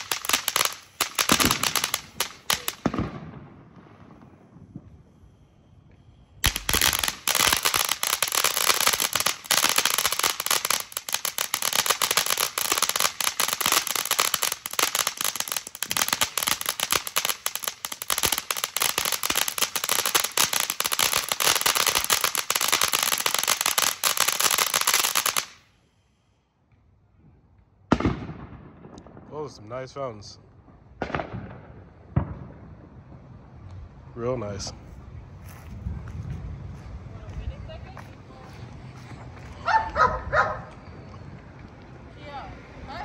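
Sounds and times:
firework fountain hissing and crackling: 0:00.0 - 0:26.6.

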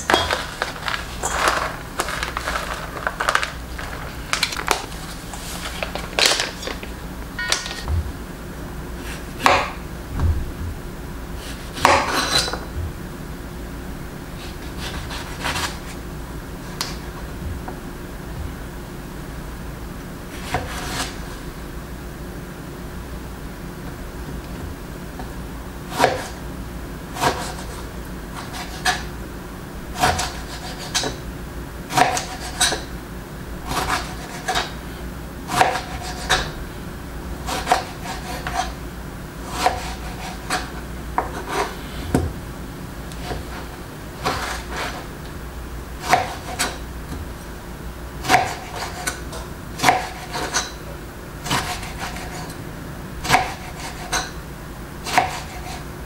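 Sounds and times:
low hum: 0:00.0 - 0:14.9, 0:15.9 - 0:20.3.

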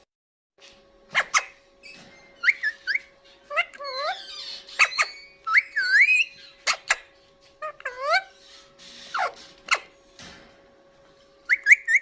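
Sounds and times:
parakeet whistled calls: 0:01.1 - 0:09.9, 0:11.4 - 0:12.0.

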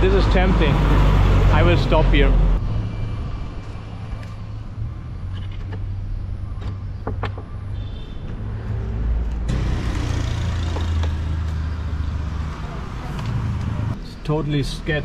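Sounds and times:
vehicle engine rumbling: 0:00.0 - 0:14.2.

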